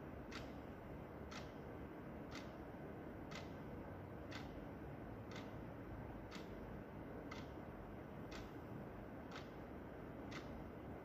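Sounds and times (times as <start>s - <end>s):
low background noise: 0.0s - 11.0s
wall clock ticking: 0.2s - 0.6s, 1.2s - 1.6s, 2.2s - 2.6s, 3.2s - 10.9s.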